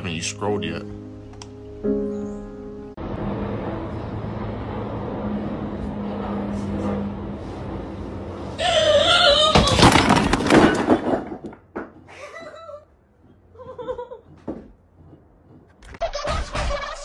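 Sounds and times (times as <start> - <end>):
person crying out: 8.6 - 10.0.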